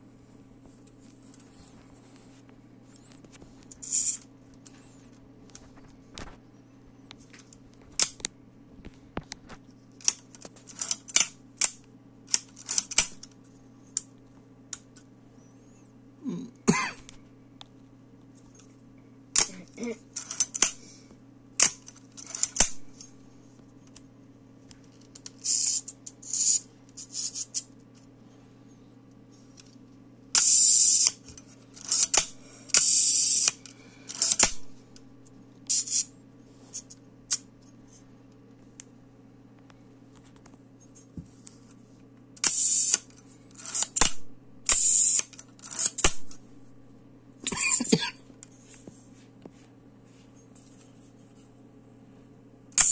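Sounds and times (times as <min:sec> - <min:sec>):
camera shutter clicks: 0:42.4 - 0:46.3.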